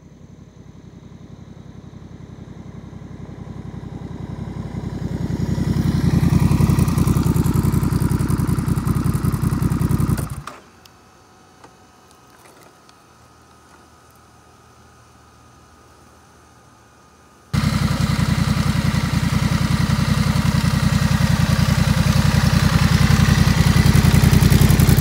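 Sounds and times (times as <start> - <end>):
motorcycle engine low pulsing beat: 17.6 - 25.0.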